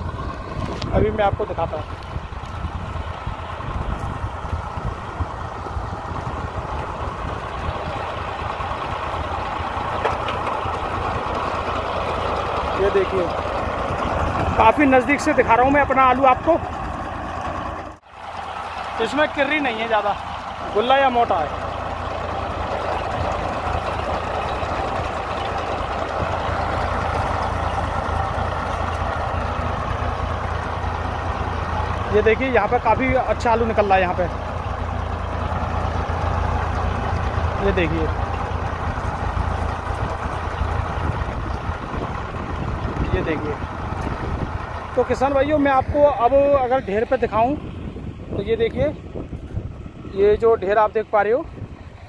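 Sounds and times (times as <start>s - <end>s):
elevator rattling: 0.0s - 51.0s
potato digger working: 0.0s - 52.0s
tractor engine running: 0.0s - 52.0s.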